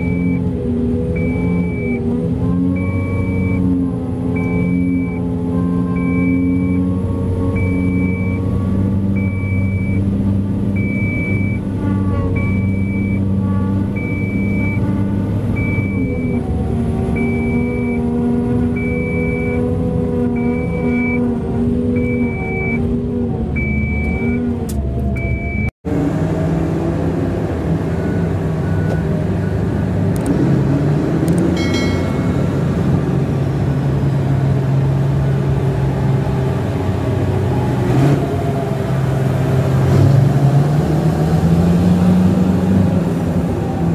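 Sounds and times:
backup alarm beeping: 0:00.0 - 0:00.5, 0:01.1 - 0:03.8, 0:04.4 - 0:05.3, 0:06.0 - 0:06.9, 0:07.5 - 0:10.1, 0:10.8 - 0:11.7, 0:12.4 - 0:13.3, 0:14.0 - 0:14.9, 0:17.2 - 0:18.1, 0:23.6 - 0:24.4, 0:25.2 - 0:25.7, 0:31.5 - 0:33.5
diesel engine running: 0:00.0 - 0:43.9.

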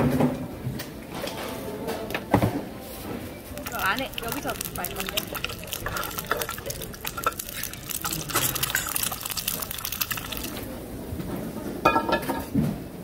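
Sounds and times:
egg sizzling in oil: 0:03.6 - 0:10.7.

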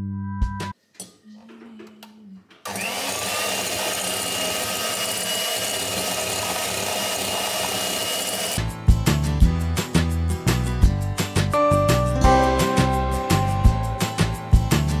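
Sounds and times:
electric hand mixer whining: 0:02.6 - 0:08.6.

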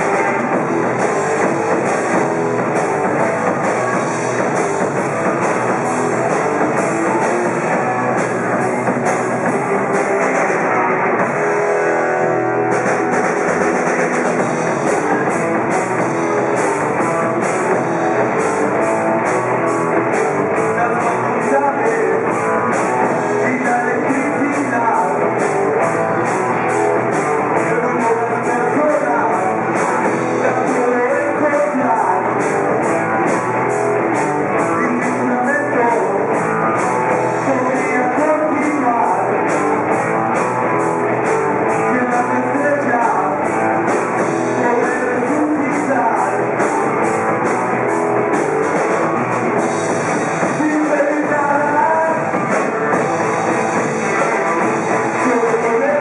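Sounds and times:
bass guitar: 0:00.0 - 0:56.0
drum kit: 0:00.0 - 0:56.0
electric guitars: 0:00.0 - 0:56.0.

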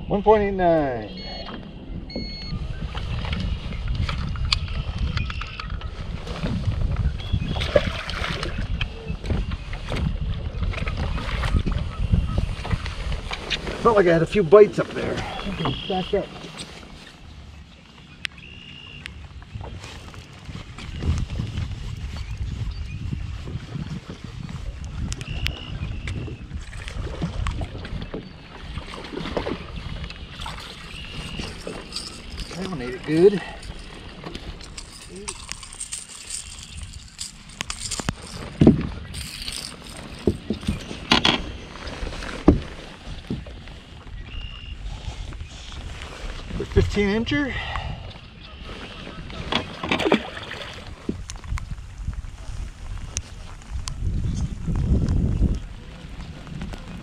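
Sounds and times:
wind rumbling on microphone: 0:00.0 - 0:18.3, 0:19.0 - 0:57.0
brief beep: 0:01.0 - 0:03.3
water lapping at boat hull: 0:48.6 - 0:51.4.

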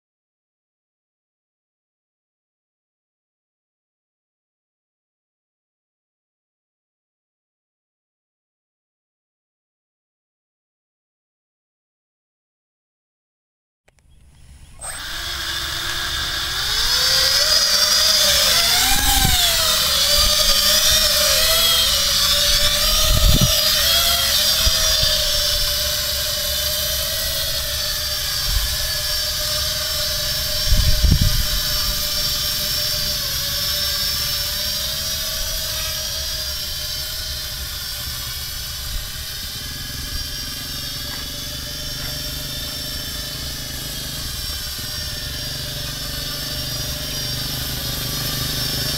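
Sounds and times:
quadcopter motors buzzing: 0:14.0 - 0:48.9.

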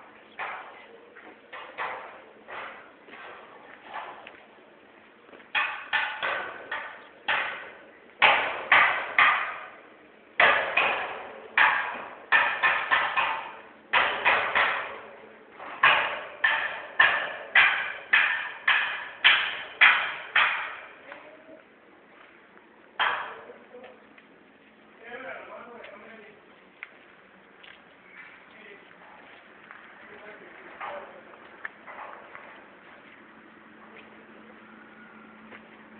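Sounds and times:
hammer striking steel: 0:05.5 - 0:09.8, 0:10.4 - 0:21.0, 0:23.0 - 0:23.5.

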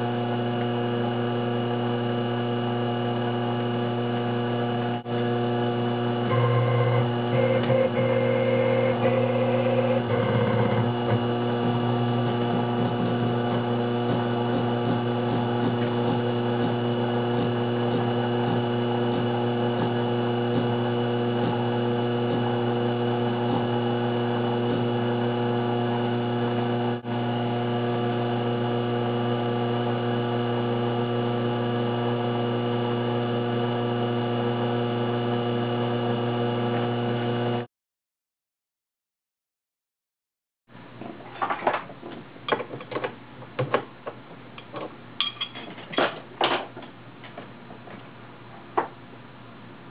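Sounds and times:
mill motor hum and whine: 0:00.0 - 0:37.7.

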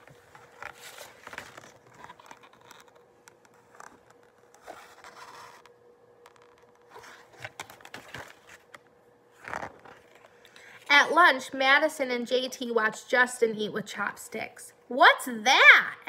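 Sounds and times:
book pages rustling: 0:00.0 - 0:10.5.

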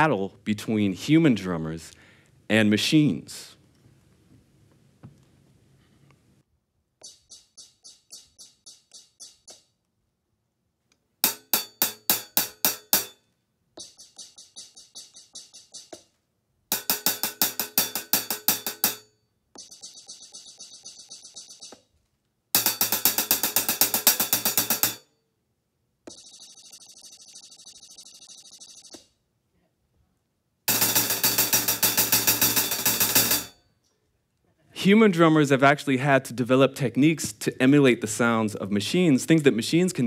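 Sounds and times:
hi-hat played with drumsticks: 0:07.0 - 0:09.7, 0:11.2 - 0:13.2, 0:13.8 - 0:16.1, 0:16.7 - 0:19.7, 0:22.6 - 0:25.0, 0:30.7 - 0:33.6.

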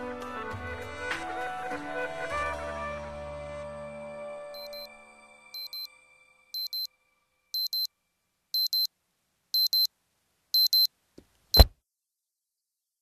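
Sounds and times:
alarm clock beeping: 0:04.6 - 0:04.9, 0:05.6 - 0:05.9, 0:06.6 - 0:06.9, 0:07.6 - 0:07.9, 0:08.6 - 0:08.9, 0:09.6 - 0:09.9, 0:10.6 - 0:10.9.

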